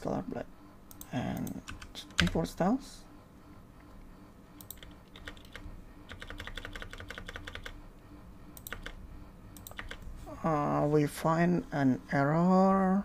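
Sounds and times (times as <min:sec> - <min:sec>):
typing on computer keyboard: 0:01.4 - 0:02.4, 0:04.6 - 0:07.8, 0:08.6 - 0:09.0, 0:09.6 - 0:10.0.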